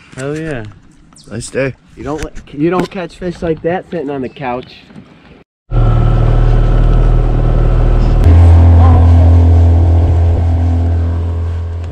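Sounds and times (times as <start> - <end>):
outboard motor running: 5.7 - 11.9.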